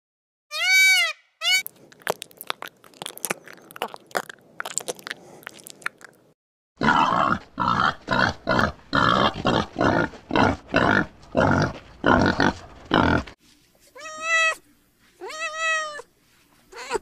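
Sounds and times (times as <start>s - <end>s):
hog grunting: 6.8s - 13.4s.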